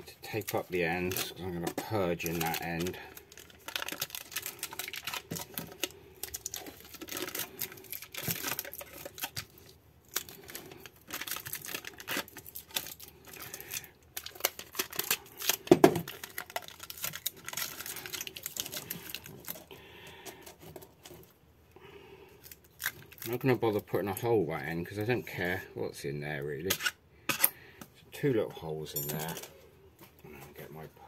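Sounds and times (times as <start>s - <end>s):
foil tape crinkling and tearing: 0.1s - 21.3s, 22.4s - 23.8s.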